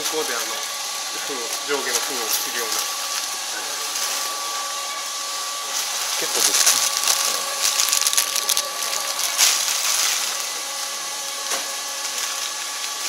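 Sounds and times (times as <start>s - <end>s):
packaging machine humming: 0.0s - 13.0s
plastic film crinkling and clicking: 5.8s - 10.5s.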